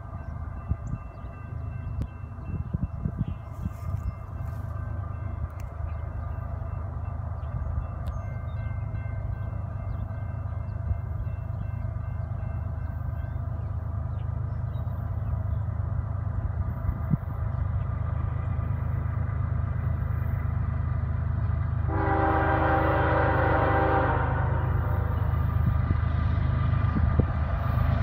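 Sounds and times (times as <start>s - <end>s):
freight train rumble: 0.0s - 28.0s
locomotive air horn chord: 21.8s - 25.5s.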